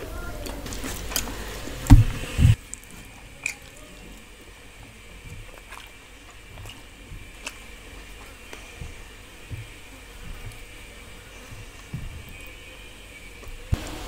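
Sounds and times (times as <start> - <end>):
faint chewing: 0.0 - 13.8
loud low thump: 1.8 - 2.6.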